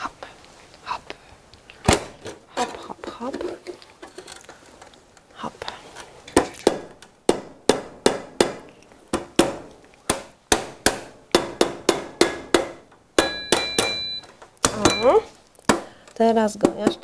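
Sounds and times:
mallet knocking on sheet metal: 6.7s - 14.0s.

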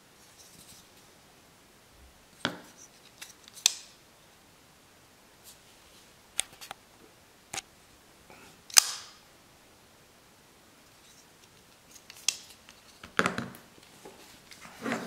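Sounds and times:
folding knife clicking: 8.7s - 9.2s.

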